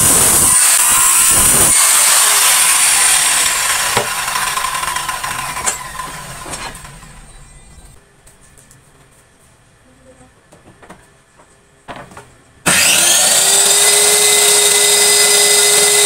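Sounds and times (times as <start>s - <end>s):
power tool whining on wood: 0.0s - 7.7s, 12.7s - 16.0s.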